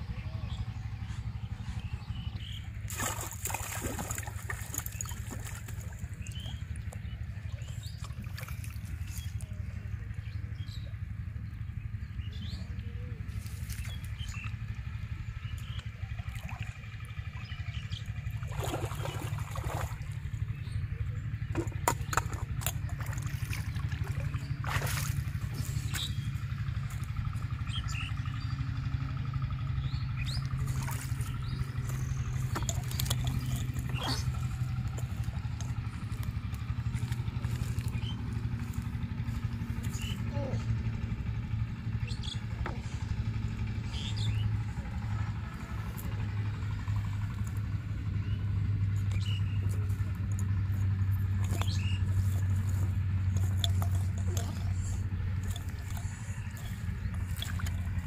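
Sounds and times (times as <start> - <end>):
engine humming: 0.0 - 58.0.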